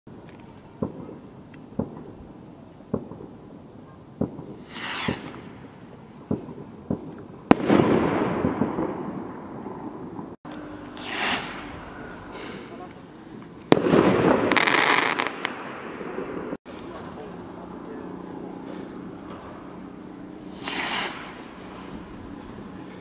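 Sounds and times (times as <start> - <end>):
firework crackling rumble: 0.1 - 23.0
loud firework crack: 0.8 - 2.2, 2.9 - 3.4, 4.2 - 16.6, 20.4 - 22.2
distant firework bangs: 0.8 - 2.3, 2.9 - 10.4, 11.0 - 13.1, 13.7 - 16.6, 20.4 - 22.2
rocket whooshing up: 4.2 - 6.7, 7.5 - 12.9, 20.4 - 22.2.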